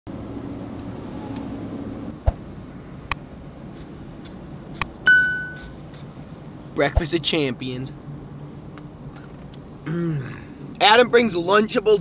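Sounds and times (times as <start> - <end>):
vehicle cab hum: 0.1 - 8.0
bell ding: 5.1 - 5.7.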